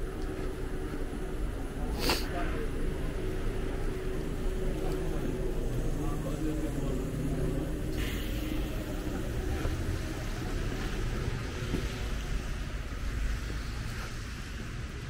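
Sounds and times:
traffic on a wet road: 0.1s - 15.0s
heavy rain hiss: 1.8s - 3.8s, 7.1s - 15.0s.

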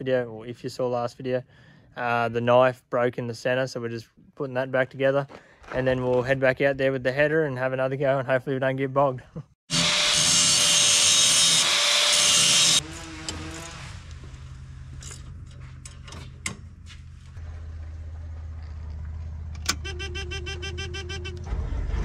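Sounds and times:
handheld power tool running: 9.7s - 14.3s
metal clicks and knocks: 15.0s - 16.7s.

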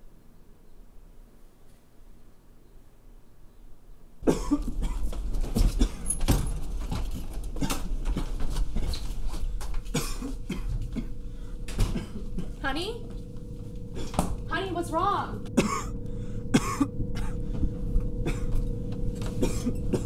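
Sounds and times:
man coughing hard: 4.2s - 6.2s, 9.9s - 12.5s, 15.5s - 17.5s, 18.2s - 18.6s, 19.3s - 20.0s.

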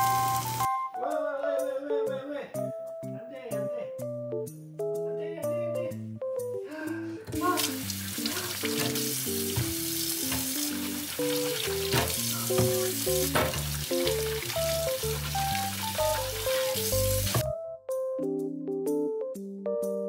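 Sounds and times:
faucet water running into sink: 0.0s - 0.7s, 7.4s - 17.5s
gentle keyboard music: 0.0s - 20.0s.

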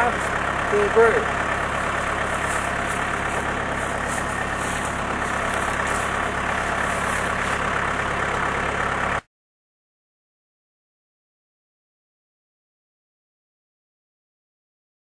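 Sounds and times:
loader engine idling: 0.0s - 9.2s.

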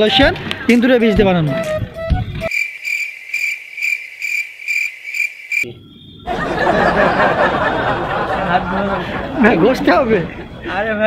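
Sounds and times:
cricket chirping: 2.4s - 7.2s
men laughing: 6.3s - 11.0s.

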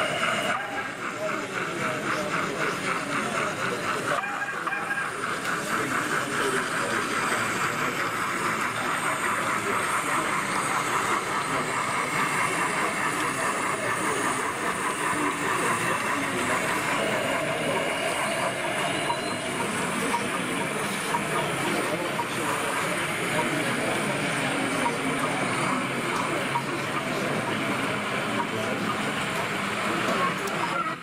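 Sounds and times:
model steam locomotive running: 0.0s - 31.0s.

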